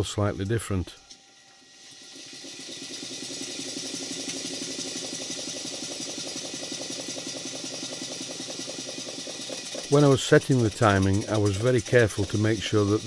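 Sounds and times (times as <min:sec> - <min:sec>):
model steam engine exhaust puffs: 0:01.8 - 0:13.0.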